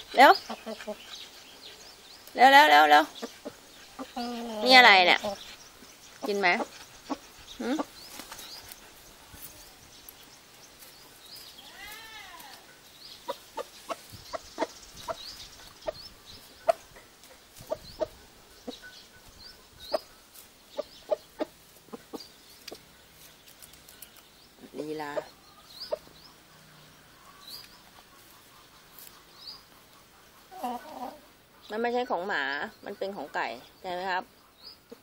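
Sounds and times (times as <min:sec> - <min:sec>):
rooster clucking: 0:13.2 - 0:18.9.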